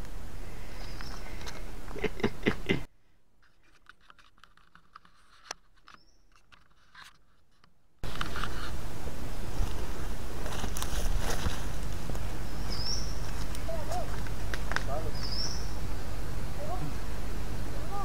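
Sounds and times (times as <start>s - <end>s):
outdoor background noise: 0.0s - 18.0s
camera rubbing against clothing: 3.4s - 8.8s, 9.5s - 12.1s.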